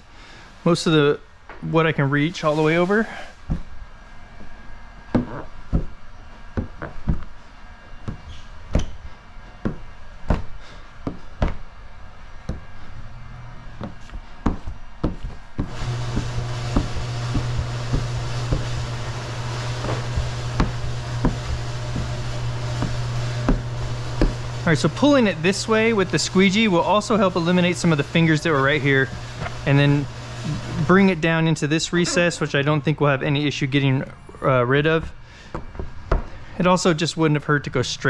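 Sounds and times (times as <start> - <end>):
low hum and hiss: 0.0 - 38.0
squeegee knocking and rubbing: 5.1 - 7.4, 9.6 - 11.7, 13.8 - 25.1.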